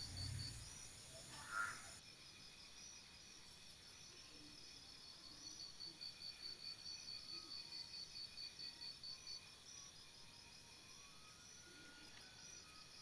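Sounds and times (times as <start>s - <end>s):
short loud insect call: 0.0s - 2.0s
insects chirping: 0.0s - 13.0s.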